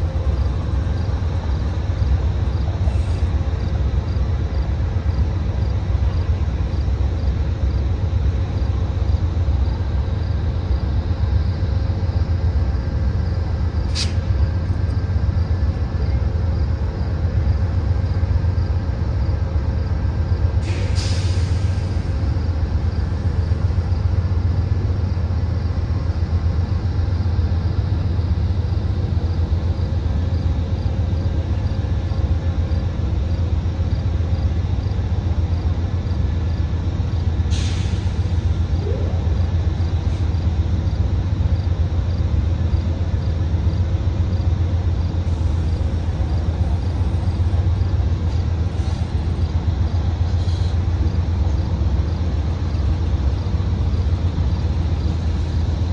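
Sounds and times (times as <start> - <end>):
diesel locomotive engines humming: 0.0 - 55.9
air hiss: 13.9 - 14.3, 20.6 - 22.2, 37.5 - 38.5, 48.2 - 49.3, 50.3 - 50.9.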